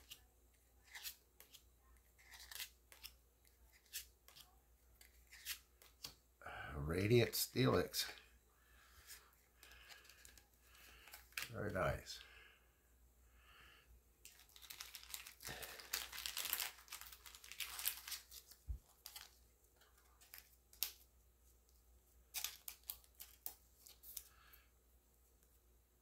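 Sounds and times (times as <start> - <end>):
cards rustling and clicking: 0.0 - 6.2, 9.0 - 12.2, 14.2 - 24.3.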